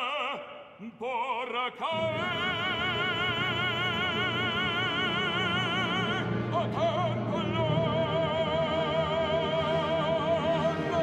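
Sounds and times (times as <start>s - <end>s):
man singing operatically: 0.0s - 11.0s.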